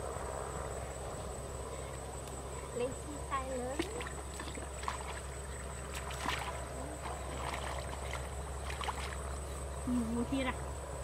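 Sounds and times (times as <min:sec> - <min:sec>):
muddy water splashing and sloshing: 0:03.4 - 0:09.7.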